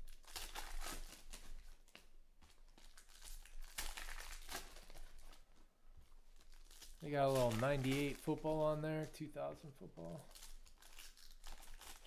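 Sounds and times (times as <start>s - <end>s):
foil wrapper crinkling: 0.0s - 12.0s.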